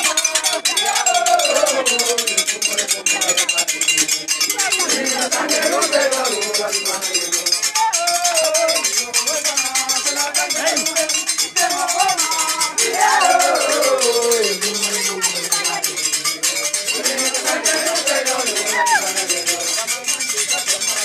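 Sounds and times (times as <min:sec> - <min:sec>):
bells clinking rapidly: 0:00.0 - 0:21.0
crowd singing: 0:00.0 - 0:21.0.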